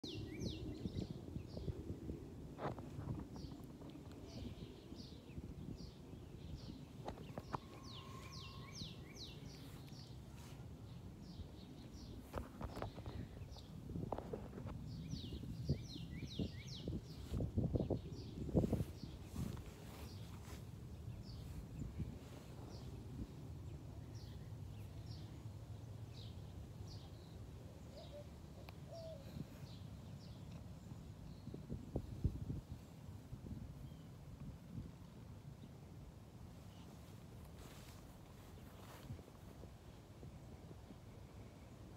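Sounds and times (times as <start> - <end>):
bird chirping: 4.2 - 14.3.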